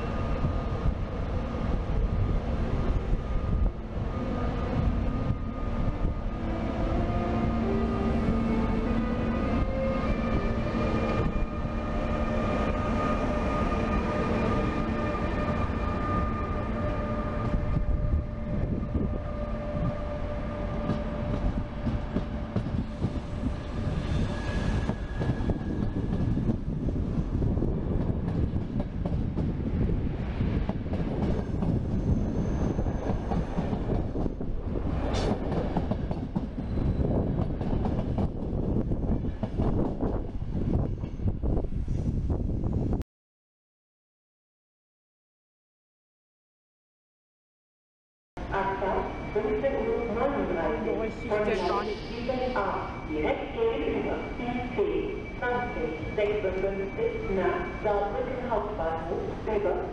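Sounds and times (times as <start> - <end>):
electric locomotive whine: 0.0 - 43.0, 48.4 - 59.9
train wheels clattering on rails: 30.6 - 34.4, 35.0 - 41.3.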